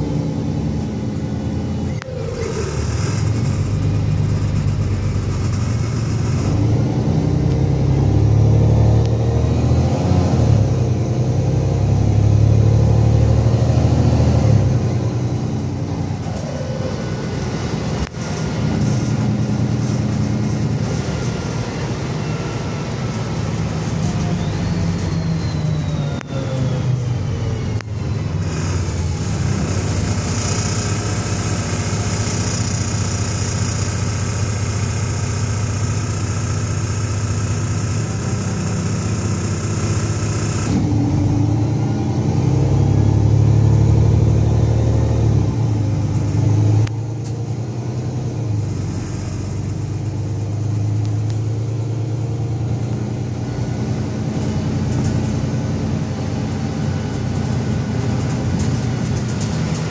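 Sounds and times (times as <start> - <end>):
bus engine rumble: 0.0 - 59.9
high steady whine: 16.0 - 40.9.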